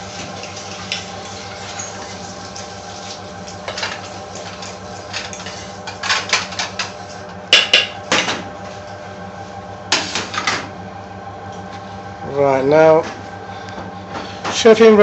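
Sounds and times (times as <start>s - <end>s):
oil crackling in frying pan: 0.0s - 7.0s
steady low hum: 0.0s - 15.0s.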